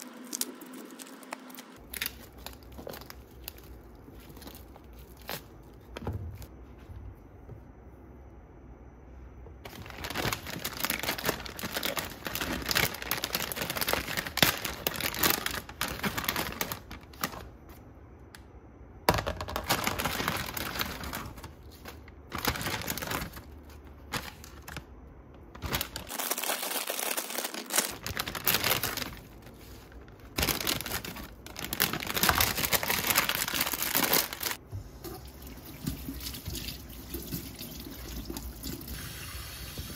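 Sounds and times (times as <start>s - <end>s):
plastic bags crinkling: 0.0s - 6.1s, 9.6s - 17.7s, 19.1s - 34.6s.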